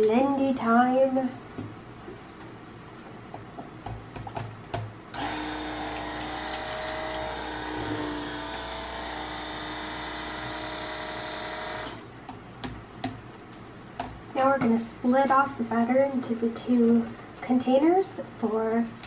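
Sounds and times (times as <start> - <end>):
blender knocking on plastic jug: 3.9 - 8.8
stick blender whining: 5.1 - 12.1.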